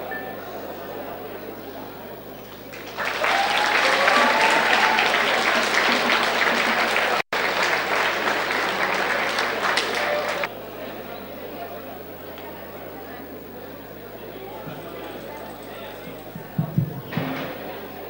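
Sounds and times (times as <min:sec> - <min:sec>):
audience applauding: 0:02.6 - 0:10.5
audience cheering: 0:02.7 - 0:10.5.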